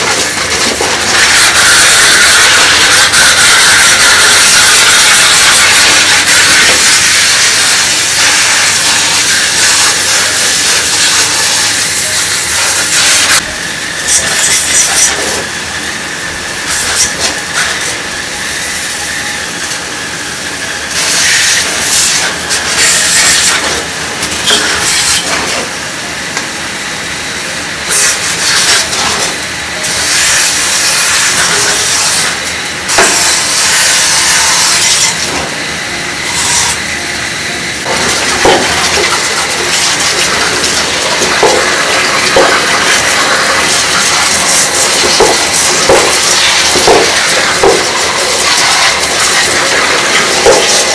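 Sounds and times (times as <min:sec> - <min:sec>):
hose water spray hissing: 0:00.0 - 0:13.4.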